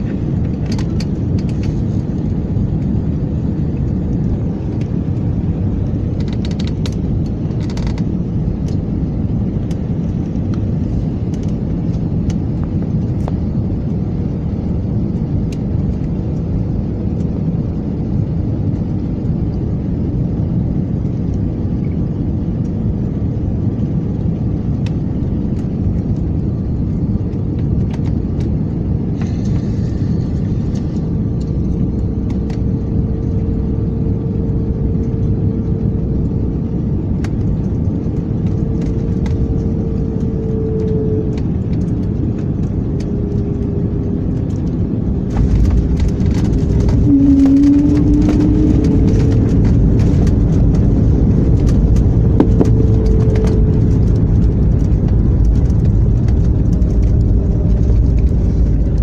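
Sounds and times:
jet cabin rumble: 0.0s - 59.0s
rising jet engine tone: 28.6s - 59.0s.

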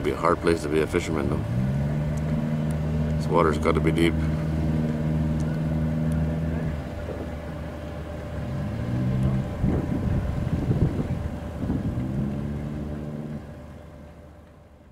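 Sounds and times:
boat engine humming: 0.0s - 14.9s
wind buffeting microphone: 8.4s - 13.6s.

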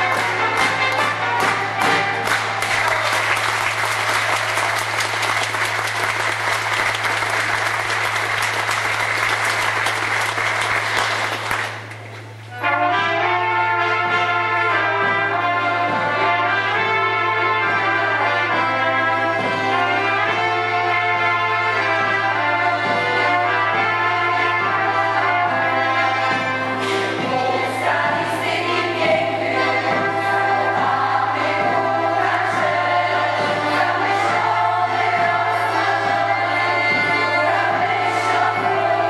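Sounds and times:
accordions and drum folk music: 0.0s - 2.6s, 13.9s - 39.0s
audience applauding: 0.1s - 12.3s.

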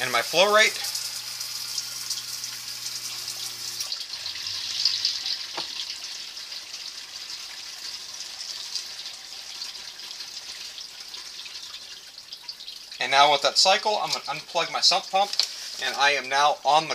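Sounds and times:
low electric pump hum: 0.1s - 5.3s.

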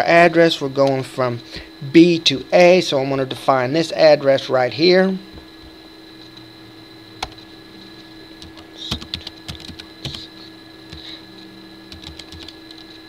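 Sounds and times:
faint electrical hum and whine: 0.0s - 13.0s.

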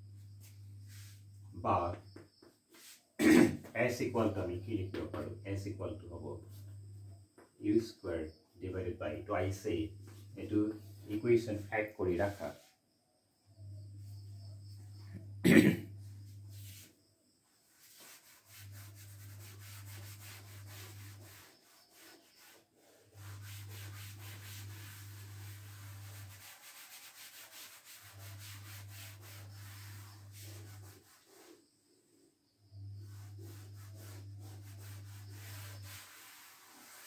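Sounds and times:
duster rubbing on chalkboard: 0.1s - 8.0s, 8.6s - 12.8s, 13.6s - 37.0s.

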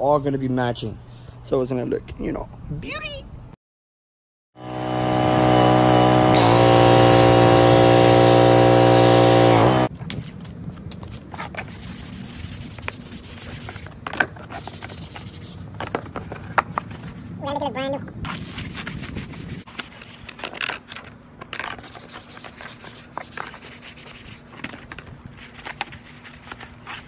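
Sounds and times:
motor humming: 4.6s - 9.9s
brush scrubbing plastic: 21.6s - 27.0s.

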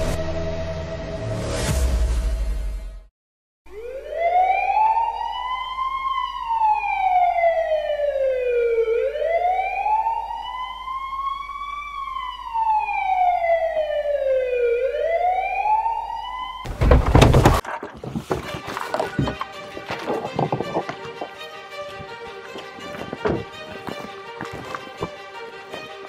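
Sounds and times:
police siren wailing: 3.7s - 16.6s.

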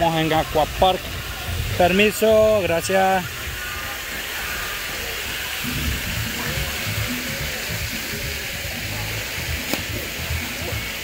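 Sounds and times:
water rushing: 0.0s - 11.0s
music from loudspeakers: 5.6s - 11.0s.

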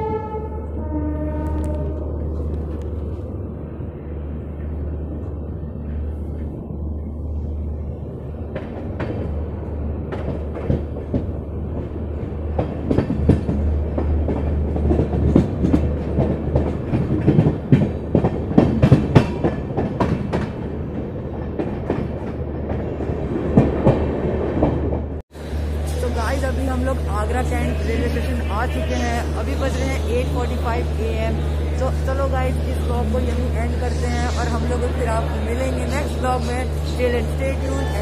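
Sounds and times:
train coach rumbling: 0.0s - 38.0s
train wheels clacking over rail joints: 10.1s - 20.7s.

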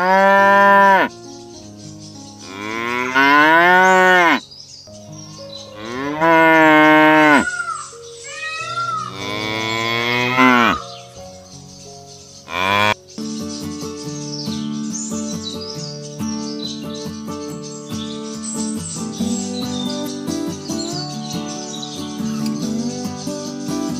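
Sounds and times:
cattle mooing: 0.0s - 1.1s, 2.5s - 4.4s, 5.8s - 7.8s, 9.1s - 10.9s, 12.5s - 13.0s.

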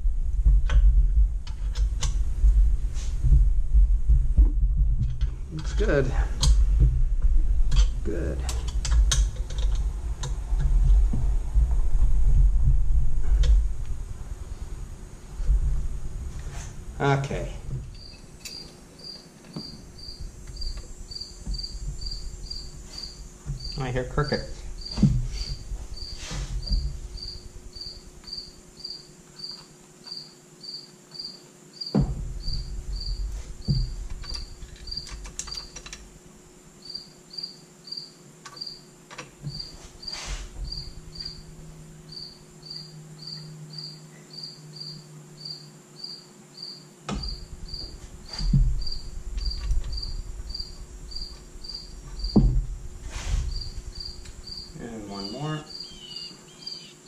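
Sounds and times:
cricket chirping: 16.5s - 57.0s
knocks and clunks from hands working: 24.8s - 25.6s, 31.9s - 36.0s, 47.1s - 50.2s, 52.1s - 53.6s.

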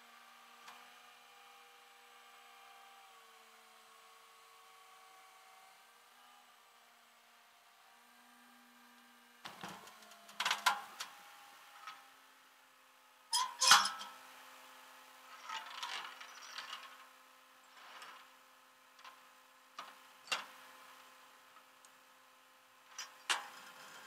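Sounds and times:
chain clanking on steel deck: 13.4s - 14.1s.

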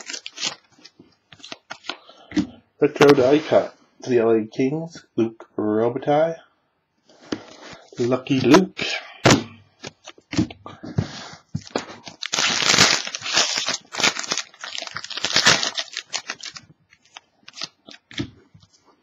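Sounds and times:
foil wrapper tearing and crinkling: 0.0s - 1.9s, 12.0s - 18.2s.

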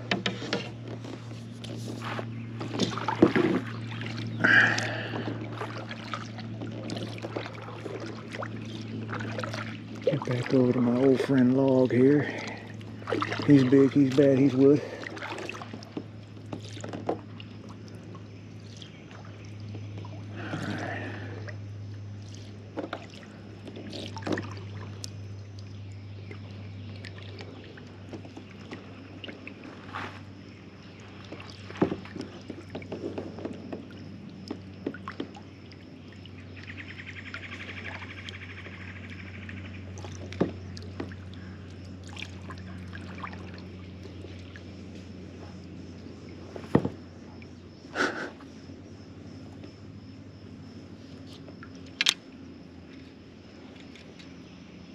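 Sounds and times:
paddle strokes in water: 0.0s - 54.9s
steady low hum: 0.0s - 54.9s
water dripping off paddle: 2.6s - 29.6s, 37.3s - 45.1s.

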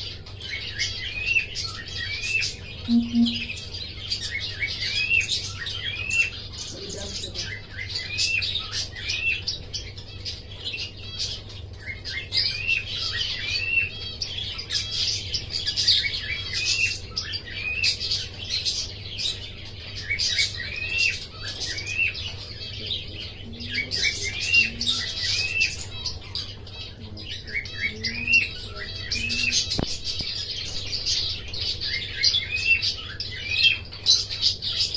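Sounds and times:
canary singing: 0.0s - 34.9s
low steady hum: 2.8s - 3.9s.

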